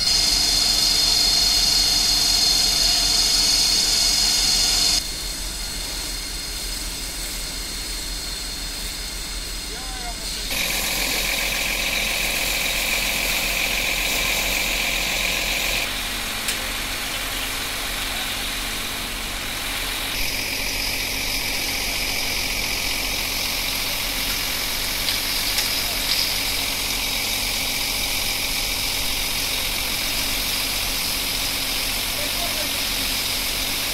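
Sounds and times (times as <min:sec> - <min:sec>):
fire engine droning: 0:00.0 - 0:33.9
water spray hissing: 0:19.4 - 0:33.9.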